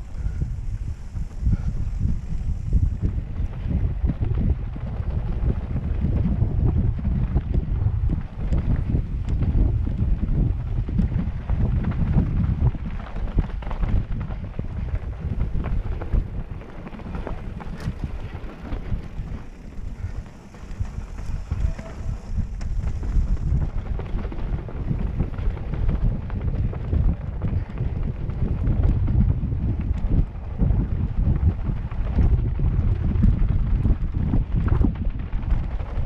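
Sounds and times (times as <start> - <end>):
bike tyres rattling on rough ground: 0.0 - 36.0
wind buffeting microphone: 0.0 - 36.0.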